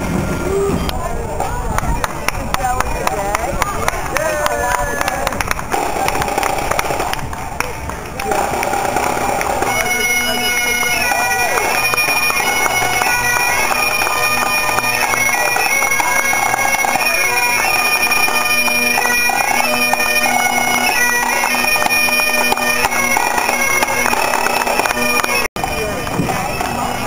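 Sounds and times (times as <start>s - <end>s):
bagpipes playing: 8.2s - 27.0s.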